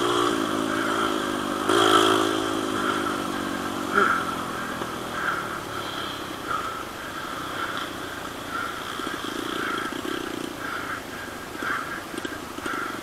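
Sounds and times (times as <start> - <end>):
motorcycle engine: 0.0 - 13.0
short animal calls: 2.7 - 13.0.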